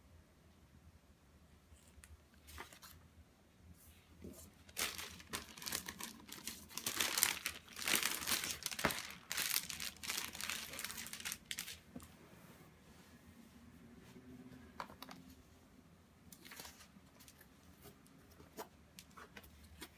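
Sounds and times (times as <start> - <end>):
plastic wrapping crinkling: 4.6 - 12.1.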